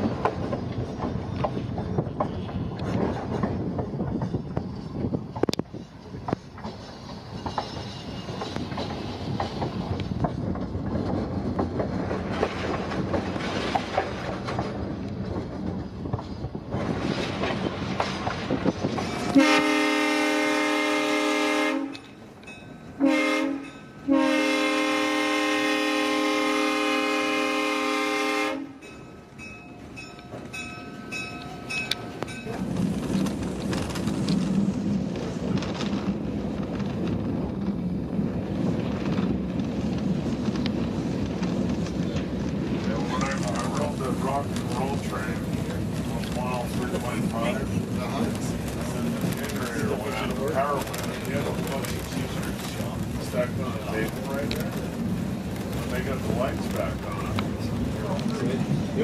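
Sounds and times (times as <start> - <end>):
train wheels clacking on rails: 0.0 - 26.8, 28.7 - 59.0
locomotive air horn blasts: 19.3 - 22.0, 23.0 - 28.8.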